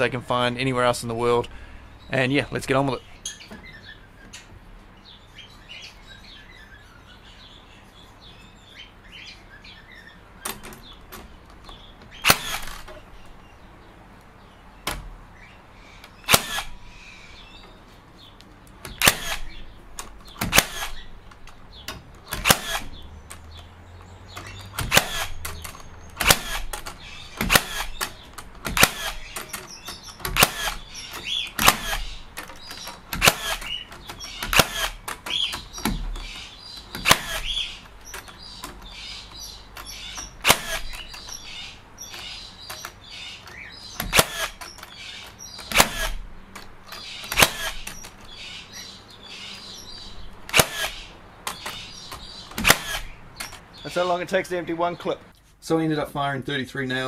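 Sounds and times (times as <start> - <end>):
nailer firing sharp cracks: 12.1 - 13.1, 16.1 - 16.9, 18.8 - 23.6, 24.3 - 48.4, 49.6 - 53.8.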